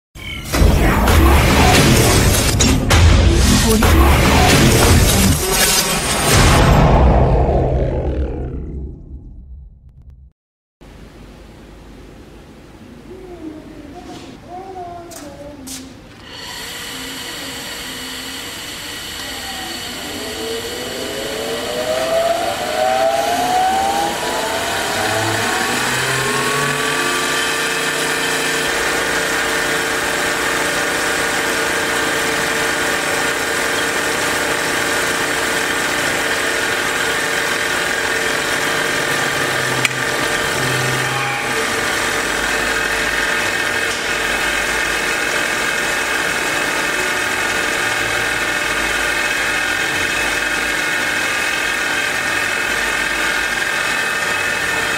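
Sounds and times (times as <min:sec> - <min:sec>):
grinder motor whining: 0:16.2 - 0:54.9.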